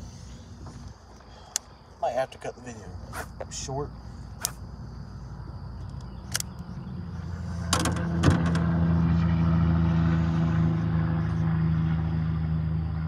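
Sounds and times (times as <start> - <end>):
sharp clicks: 4.4 - 4.6, 5.8 - 6.7
motor droning: 5.0 - 13.0.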